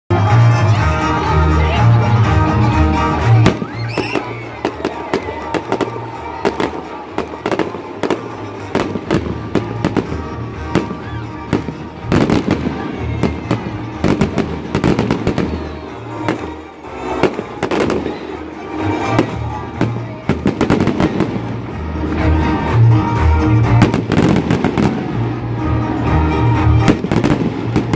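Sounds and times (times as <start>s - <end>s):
fireworks bangs and pops: 3.2s - 22.2s, 23.6s - 25.2s, 26.5s - 27.9s
music with bass beat: 17.2s - 27.9s.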